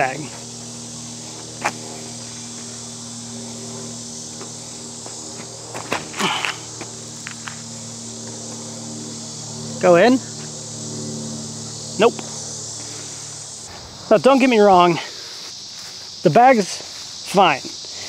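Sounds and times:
insects droning: 0:00.0 - 0:18.0
steady low hum: 0:00.0 - 0:18.0
footsteps on a dirt path: 0:00.3 - 0:02.8, 0:04.3 - 0:08.7, 0:12.2 - 0:17.9
disc golf throw burst: 0:00.3 - 0:08.8, 0:11.4 - 0:16.2.

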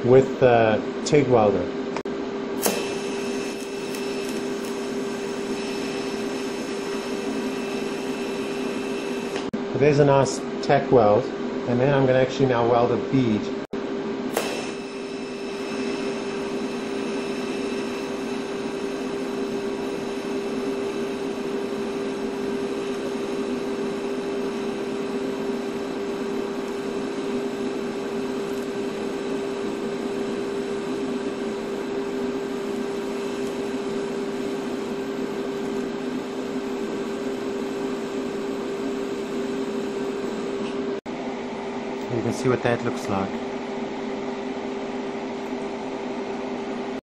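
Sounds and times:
welding arc hissing: 0:02.6 - 0:09.5, 0:14.3 - 0:40.7.

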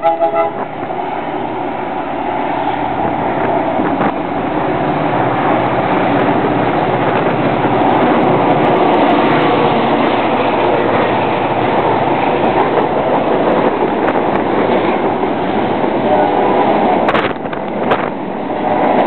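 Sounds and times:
freight cars rolling on rails: 0:00.0 - 0:19.0.

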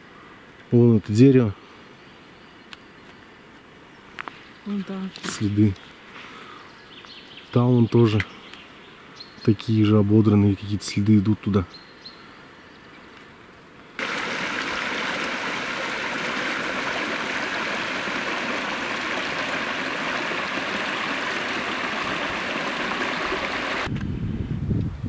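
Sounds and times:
stream of water running: 0:14.0 - 0:23.9.

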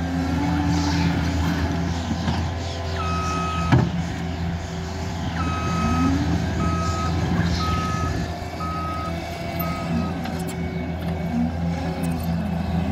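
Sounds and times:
diesel engine running: 0:00.0 - 0:12.9
backup alarm beeping: 0:03.0 - 0:03.8, 0:05.3 - 0:11.4.

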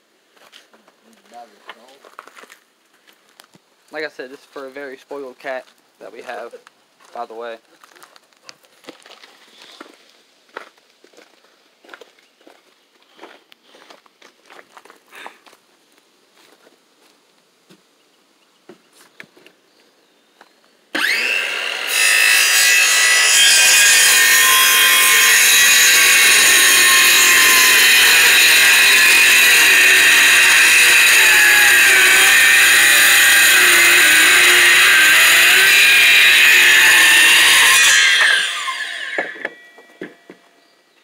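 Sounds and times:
circular saw cutting board: 0:21.0 - 0:40.4.

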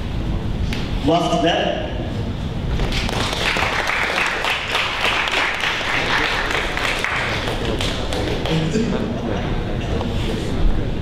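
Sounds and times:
audience applauding: 0:02.8 - 0:09.0.

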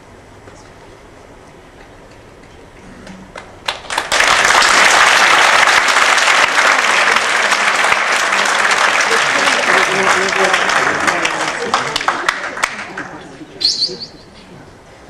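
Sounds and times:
audience applause: 0:03.3 - 0:13.4.

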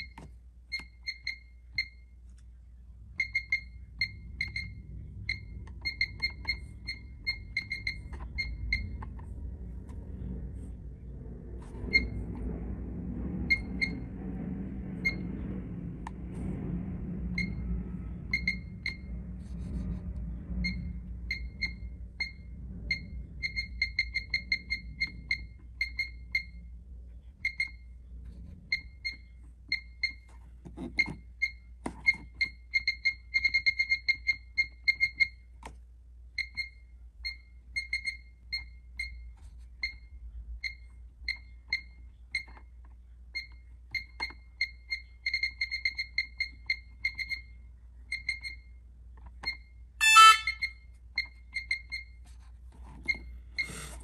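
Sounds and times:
keypad beeping: 0:03.2 - 0:09.0
multi-pitch beep: 0:03.2 - 0:09.0, 0:49.4 - 0:52.2.

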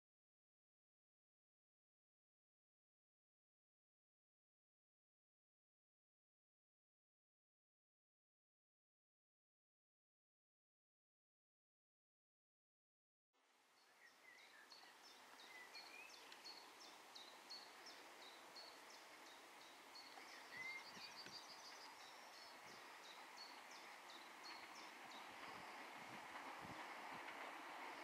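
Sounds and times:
birds chirping: 0:13.8 - 0:28.0
short whistled bird notes: 0:13.9 - 0:25.9
distant steam train: 0:13.9 - 0:28.0.

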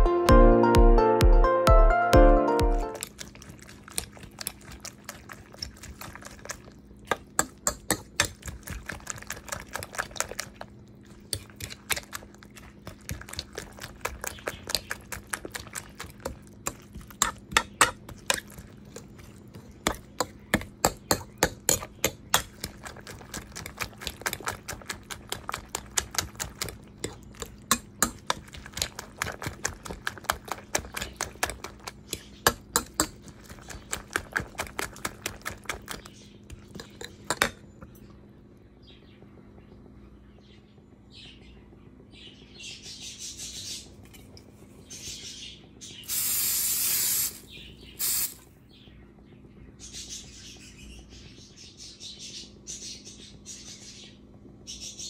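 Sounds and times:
fork beating eggs in a dish: 0:02.9 - 0:38.0.

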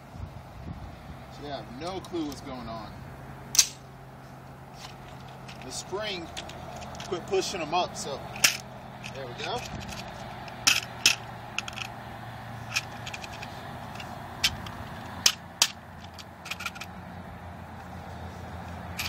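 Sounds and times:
drum magazine clicking and rattling: 0:06.3 - 0:07.1, 0:08.4 - 0:11.9, 0:12.7 - 0:16.9.

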